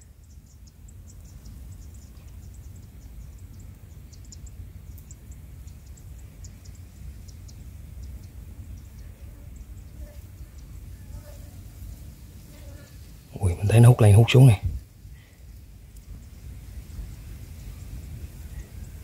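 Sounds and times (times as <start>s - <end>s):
steady low rumble: 0.0s - 12.4s
insects chirping: 0.0s - 19.0s.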